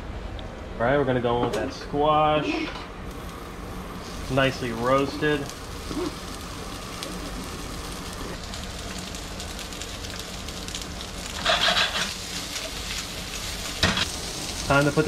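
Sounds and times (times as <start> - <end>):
vegetables sizzling in a skillet: 3.1 - 15.0.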